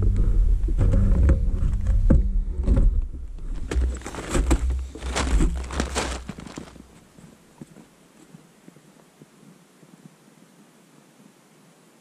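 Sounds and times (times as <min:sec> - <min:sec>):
low rumble: 0:00.0 - 0:05.8
camera handling scraping and rustling: 0:03.4 - 0:07.2.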